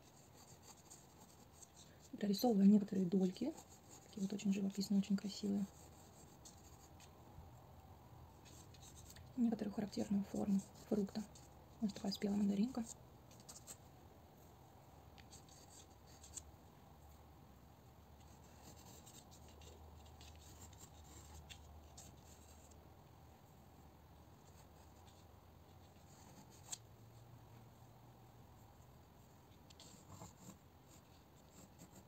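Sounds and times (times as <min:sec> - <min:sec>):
pencil scratching on paper: 0:00.0 - 0:07.0, 0:08.4 - 0:13.8, 0:15.2 - 0:16.4, 0:18.2 - 0:22.8, 0:25.8 - 0:26.8, 0:29.7 - 0:32.0.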